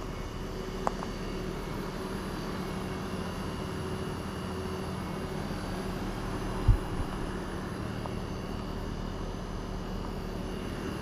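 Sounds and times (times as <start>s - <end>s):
compressor hum: 0.0s - 11.0s
fan whoosh: 6.2s - 7.5s.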